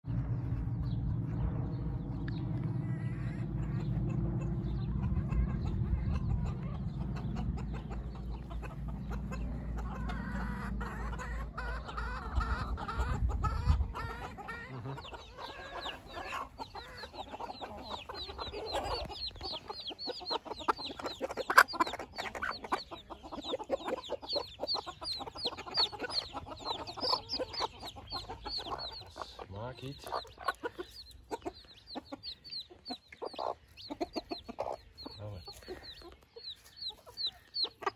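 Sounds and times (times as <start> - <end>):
low rumble: 0.0 - 19.9
chicks peeping: 0.1 - 37.9
hen clucking: 2.3 - 37.9.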